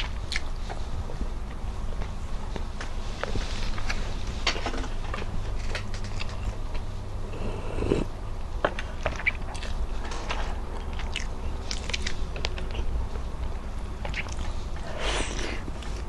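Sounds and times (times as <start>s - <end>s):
person chewing wetly: 0.0s - 0.5s, 9.0s - 12.9s, 14.0s - 16.0s.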